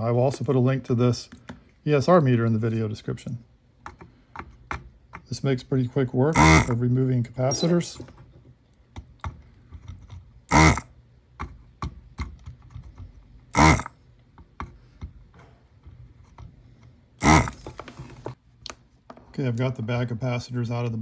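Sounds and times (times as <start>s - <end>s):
tool clicking and tapping on board: 3.8s - 5.3s, 11.4s - 13.2s
desoldering gun vacuum pump bursts: 6.4s - 6.8s, 10.5s - 10.9s, 13.5s - 13.9s, 17.2s - 17.6s.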